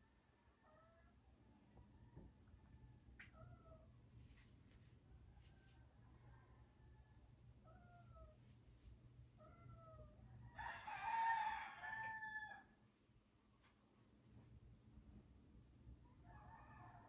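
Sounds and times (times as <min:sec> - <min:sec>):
rooster crowing: 0:09.6 - 0:12.8, 0:16.2 - 0:17.0.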